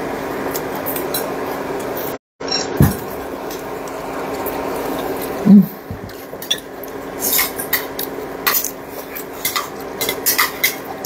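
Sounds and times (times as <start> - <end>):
dull bump: 2.8 - 3.2
utensils clinking on ceramic bowl: 6.4 - 11.0.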